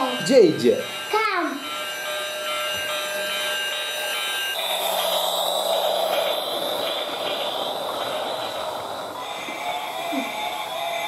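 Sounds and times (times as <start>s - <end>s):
electronic toy tones: 0.0s - 11.0s
toy train motor whirring: 0.0s - 11.0s
low hum: 3.3s - 11.0s.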